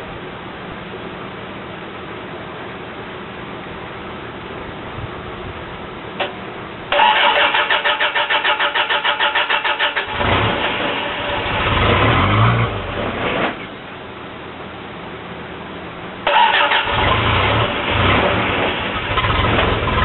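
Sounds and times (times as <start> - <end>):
engine running unevenly: 0.0 - 20.0
engine starter cranking: 6.9 - 12.1, 16.3 - 20.0.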